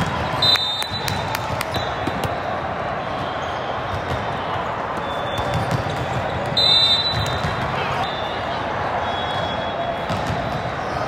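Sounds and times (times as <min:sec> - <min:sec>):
volleyballs smacking and bouncing: 0:00.0 - 0:02.5, 0:03.8 - 0:08.0, 0:10.0 - 0:11.0.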